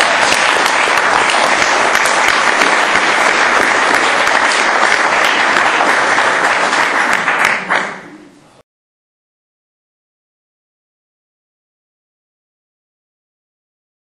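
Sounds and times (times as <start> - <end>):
audience applauding: 0.0 - 8.3.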